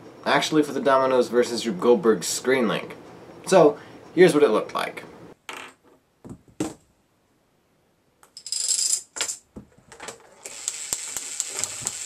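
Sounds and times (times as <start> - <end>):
toy motor whining and clicking: 10.3 - 12.0.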